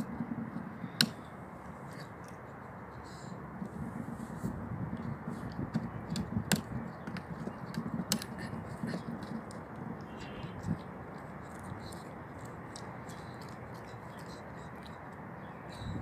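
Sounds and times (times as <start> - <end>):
dog gnawing on wood: 4.9 - 15.3.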